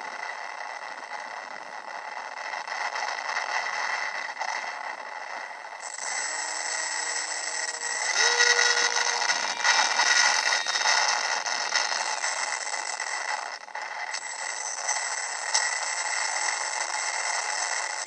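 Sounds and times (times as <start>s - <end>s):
small electric motor whining: 5.8s - 13.4s.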